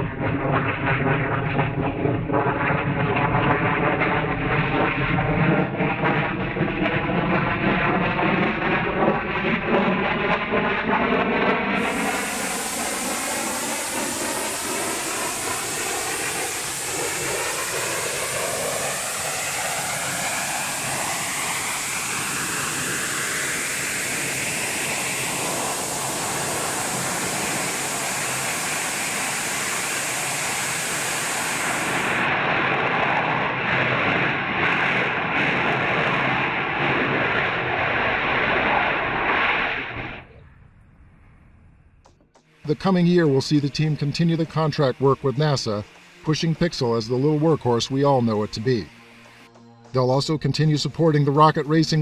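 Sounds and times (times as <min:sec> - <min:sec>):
rocket engine exhaust rush: 0:00.0 - 0:52.0.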